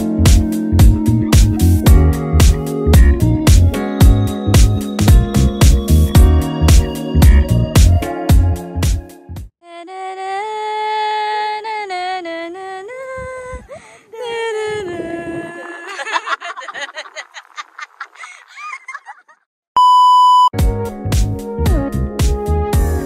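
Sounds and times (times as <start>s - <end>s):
woman singing wordless tune: 9.6s - 16.0s
test-tone beep: 19.8s - 20.5s.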